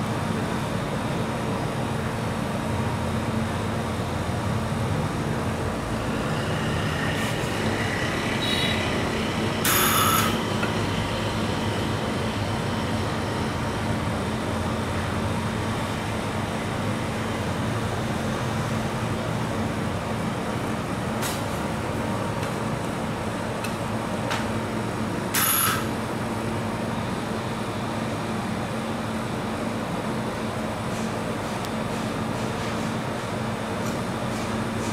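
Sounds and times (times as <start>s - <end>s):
steady background drone: 3.7s - 21.2s.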